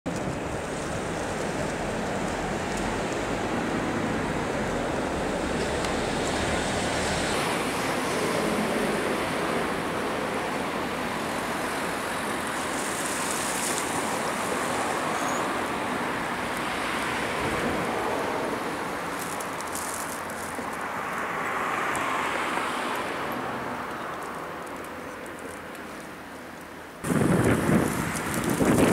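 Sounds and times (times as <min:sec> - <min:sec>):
wind: 0:00.0 - 0:28.9
distant road traffic hum: 0:00.1 - 0:28.9
water washing: 0:07.4 - 0:22.2.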